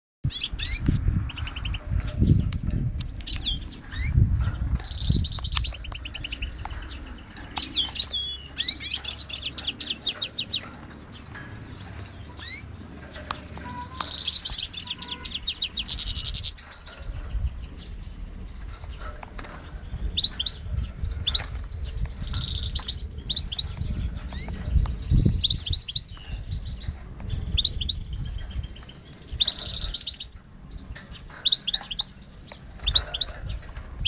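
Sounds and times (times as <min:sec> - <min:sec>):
finch singing: 0:00.2 - 0:34.0
bird rapid trills: 0:03.2 - 0:33.6
low microphone rumble: 0:14.6 - 0:31.4.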